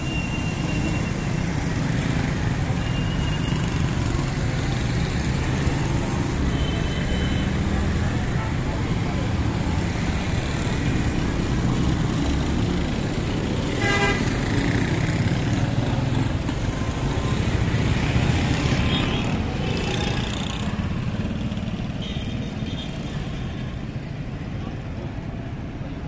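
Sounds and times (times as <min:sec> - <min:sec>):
vehicle horn tooting: 0:13.8 - 0:14.2.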